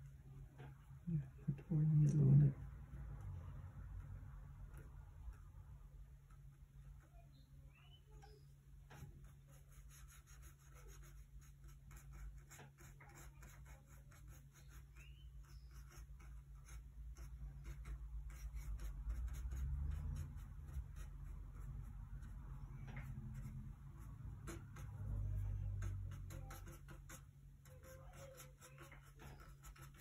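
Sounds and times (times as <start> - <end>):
low steady hum: 0.0 - 30.0
paintbrush scratchy ticks: 8.2 - 30.0.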